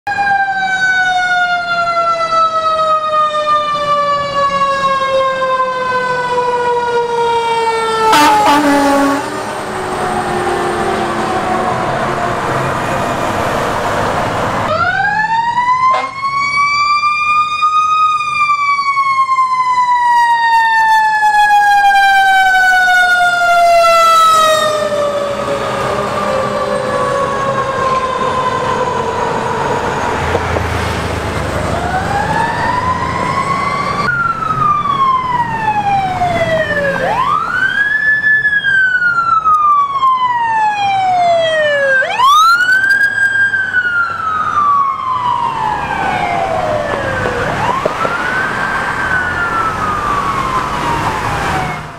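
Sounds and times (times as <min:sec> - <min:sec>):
siren wailing: 0:00.0 - 0:51.9
traffic: 0:00.0 - 0:51.9
mechanical siren winding down: 0:00.1 - 0:13.3, 0:14.7 - 0:51.9
truck engines rumbling: 0:00.1 - 0:51.9.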